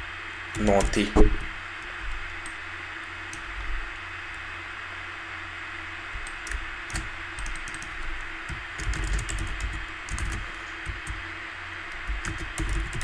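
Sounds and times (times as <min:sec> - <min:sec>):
steady background hiss: 0:00.0 - 0:13.0
keyboard typing clicks: 0:06.2 - 0:11.2, 0:11.9 - 0:13.0.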